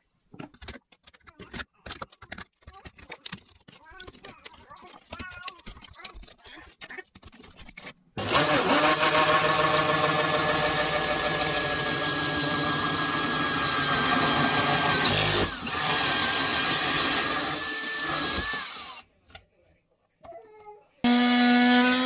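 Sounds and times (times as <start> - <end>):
drill motor whine: 8.2 - 19.0, 21.1 - 22.0
hole saw cutting into wall: 8.2 - 19.0.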